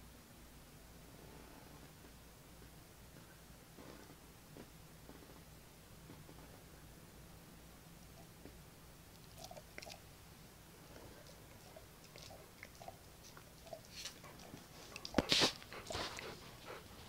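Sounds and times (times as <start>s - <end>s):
dogs chewing and licking: 9.1s - 10.2s, 10.8s - 17.0s
dog sniffing: 10.8s - 17.0s.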